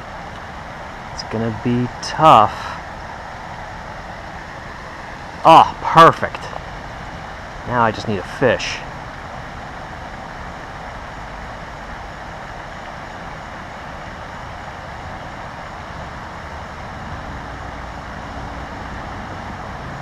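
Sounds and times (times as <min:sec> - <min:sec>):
distant road traffic rumble: 0:00.0 - 0:20.0
faint hum: 0:00.0 - 0:20.0.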